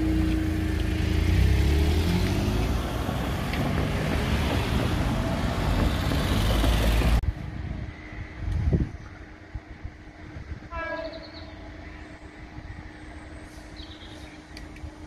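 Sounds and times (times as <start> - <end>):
cars driving over level crossing: 0.0 - 7.2.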